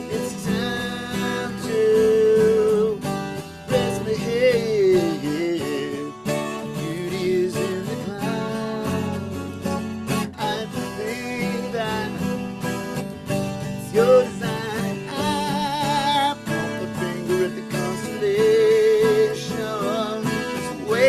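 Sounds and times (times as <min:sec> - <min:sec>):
acoustic guitar strummed chords: 0:00.0 - 0:21.0
man singing with vibrato: 0:00.0 - 0:21.0.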